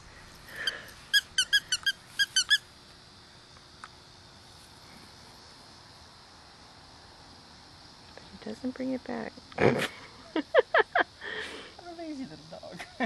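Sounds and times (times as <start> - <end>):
squeaky dog toy squeaking: 1.1 - 2.6.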